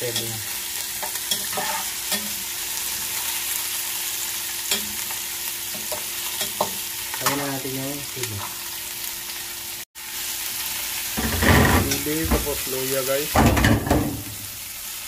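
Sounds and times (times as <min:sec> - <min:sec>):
vegetables sizzling in a pot: 0:00.0 - 0:15.0
metal spoon scraping a pot: 0:01.0 - 0:02.3.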